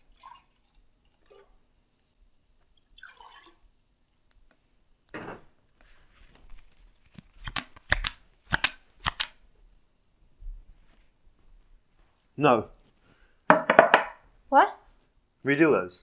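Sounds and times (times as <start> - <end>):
playing cards rustling: 5.8 - 9.4
playing cards snapping: 7.1 - 9.4.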